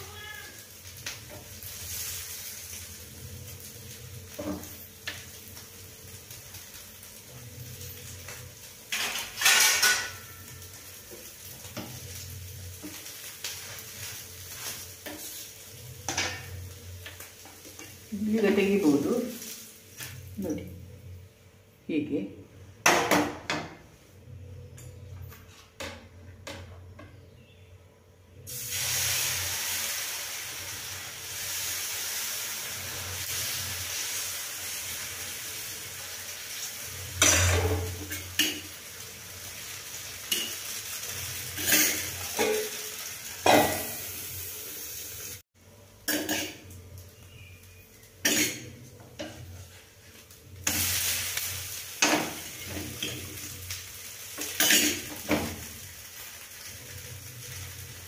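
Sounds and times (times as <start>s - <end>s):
batter sizzling on a hot pan: 0.0s - 20.5s, 28.4s - 58.0s
metal utensil scraping a pan: 8.9s - 10.4s, 37.2s - 38.8s, 40.2s - 43.9s, 54.4s - 55.4s.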